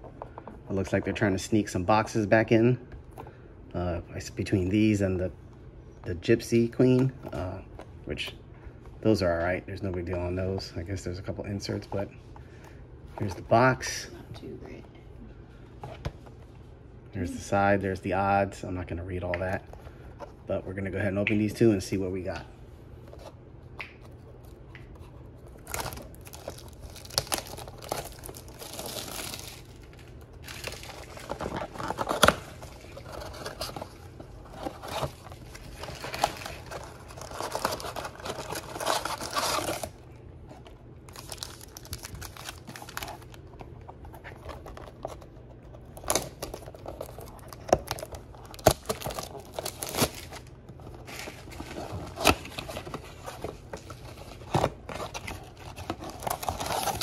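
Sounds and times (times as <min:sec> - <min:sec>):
cardboard crinkling and tearing: 0:25.0 - 0:57.0.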